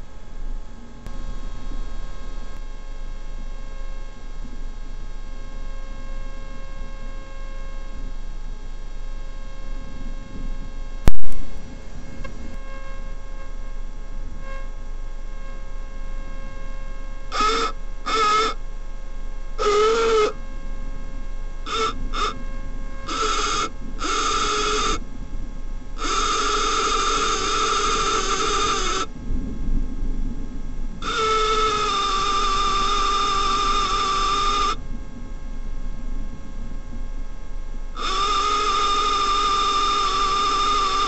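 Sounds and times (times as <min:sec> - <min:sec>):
low steady hum: 0:00.0 - 0:41.0
small electric motors whining: 0:14.4 - 0:18.6, 0:19.4 - 0:20.7, 0:21.6 - 0:25.1, 0:25.9 - 0:29.1, 0:31.0 - 0:34.8, 0:37.9 - 0:41.0.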